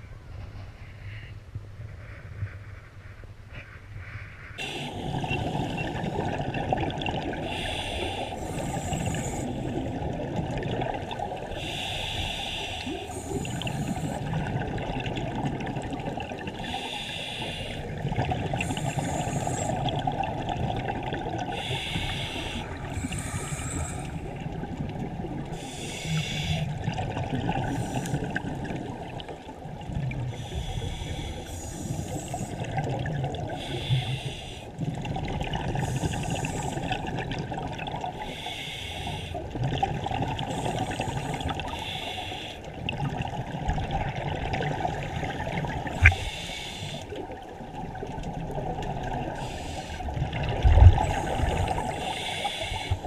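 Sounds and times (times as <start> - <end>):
low rumble of water: 0.0 - 53.0
diver breathing through regulator: 7.4 - 9.8, 11.6 - 14.4, 16.6 - 20.0, 21.5 - 24.4, 25.5 - 26.9, 30.4 - 32.8, 33.6 - 34.8, 35.8 - 37.0, 38.2 - 39.4, 40.5 - 42.7, 45.9 - 47.2, 49.4 - 50.2, 50.9 - 53.0.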